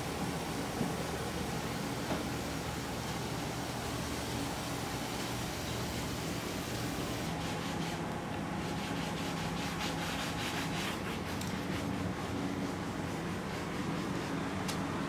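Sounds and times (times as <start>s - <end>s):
steady low hum: 0.0s - 15.0s
brush scrubbing a windshield: 6.7s - 14.6s.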